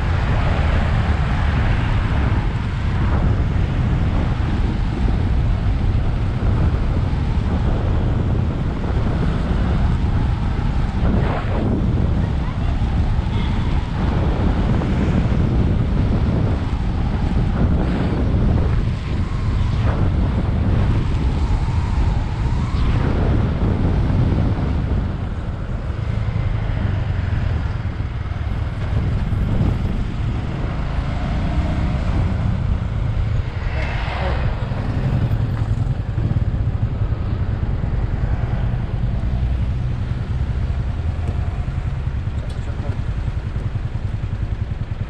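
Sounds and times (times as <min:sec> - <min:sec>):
wind rushing over microphone: 0:00.0 - 0:45.0
motorcycle engine running: 0:34.3 - 0:45.0.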